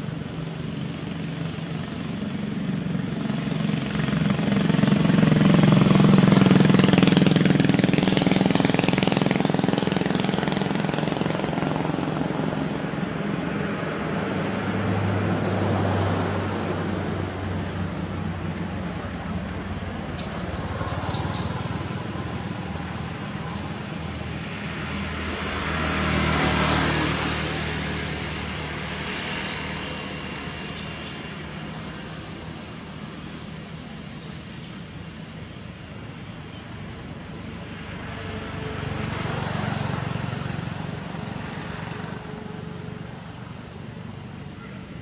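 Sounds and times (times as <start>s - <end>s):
road traffic: 0.0s - 45.0s
vehicle passing: 0.7s - 34.2s, 36.8s - 45.0s
background hiss: 16.1s - 45.0s.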